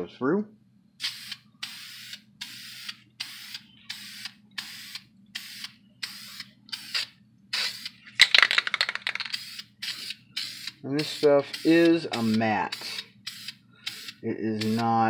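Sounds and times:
aerosol can rattle: 0:08.2 - 0:09.6
aerosol spray hissing: 0:09.4 - 0:14.9.

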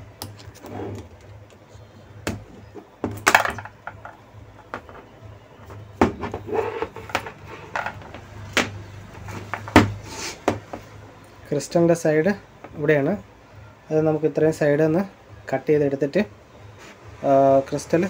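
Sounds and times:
plastic parts clicking and knocking: 0:03.0 - 0:05.1, 0:06.0 - 0:08.8.

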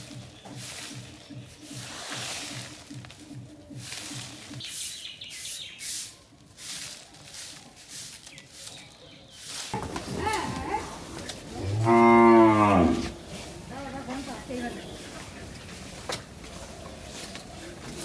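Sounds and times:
broom sweeping dirt: 0:00.0 - 0:18.0
cow mooing: 0:10.2 - 0:13.2.

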